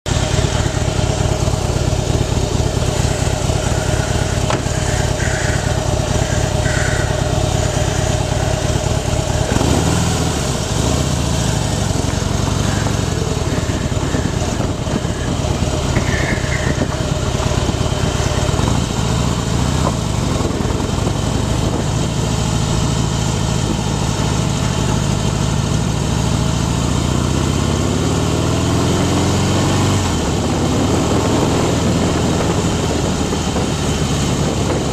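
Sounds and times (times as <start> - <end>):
motorcycle engine running: 0.1 - 34.9
wind buffeting microphone: 2.7 - 22.8, 30.2 - 34.9.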